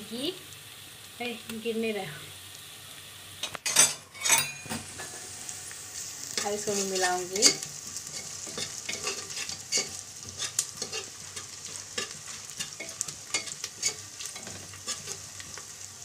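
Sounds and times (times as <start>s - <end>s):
onions sizzling in oil: 0.0s - 16.0s
spoon scraping against pot: 6.4s - 15.3s.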